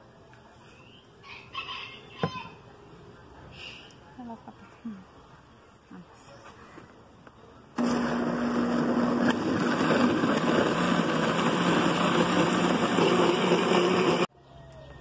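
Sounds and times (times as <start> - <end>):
blender running: 7.8 - 14.3.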